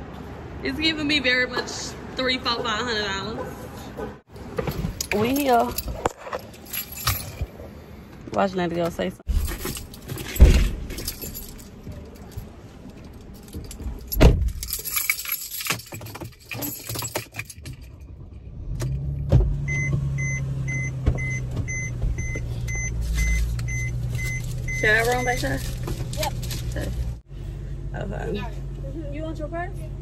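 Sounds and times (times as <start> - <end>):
car warning chime beeping: 19.6 - 25.6.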